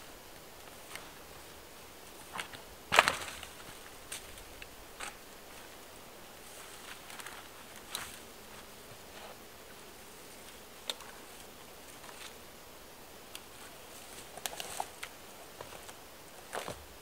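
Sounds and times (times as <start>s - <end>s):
dry branches cracking and knocking: 2.2s - 5.7s, 6.6s - 8.6s, 13.3s - 16.8s.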